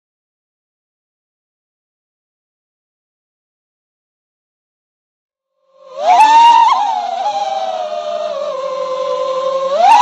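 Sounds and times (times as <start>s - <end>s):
drone motors whining: 5.8s - 10.0s.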